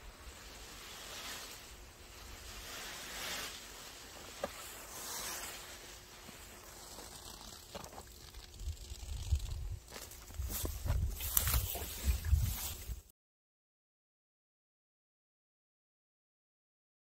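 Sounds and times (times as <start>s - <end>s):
watering can spraying water: 0.0s - 13.0s.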